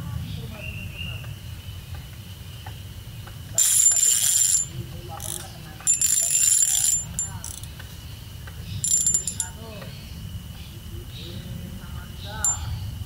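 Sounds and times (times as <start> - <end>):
fishing reel whirring: 3.6 - 7.7, 8.8 - 9.6.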